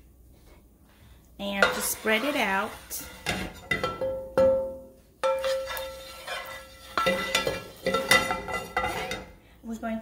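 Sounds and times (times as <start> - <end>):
spatula knocking metal pan: 1.6 - 2.3, 3.1 - 9.3.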